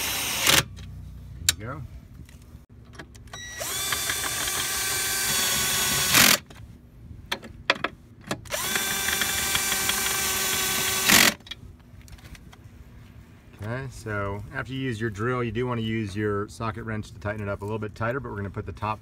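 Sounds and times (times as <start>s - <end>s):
cordless drill whirring: 0.0s - 0.7s, 3.4s - 6.4s, 8.5s - 11.4s
drill rattle: 0.0s - 0.7s, 3.4s - 6.5s, 8.5s - 11.4s.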